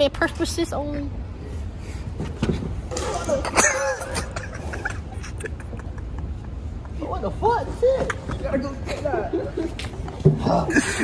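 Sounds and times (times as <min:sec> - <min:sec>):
people talking: 0:00.0 - 0:01.1.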